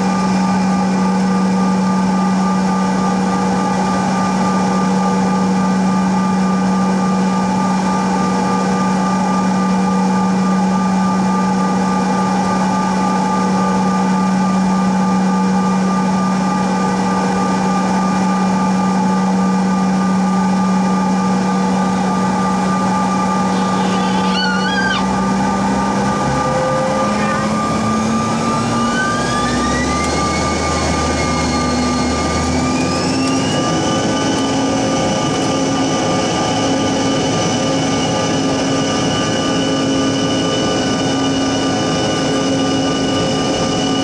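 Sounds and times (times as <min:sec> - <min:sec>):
jet engines idling: 0:00.0 - 0:44.0
wavering tone: 0:23.2 - 0:25.2.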